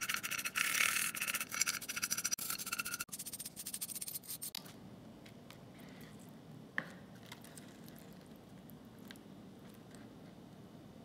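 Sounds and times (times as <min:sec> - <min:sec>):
wire brush scrubbing metal blade: 0:00.0 - 0:04.5.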